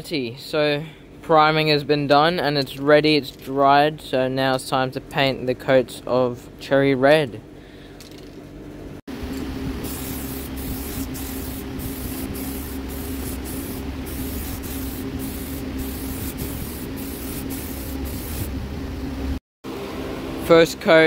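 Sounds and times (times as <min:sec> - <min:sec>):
spray paint can hissing: 0:09.8 - 0:18.6.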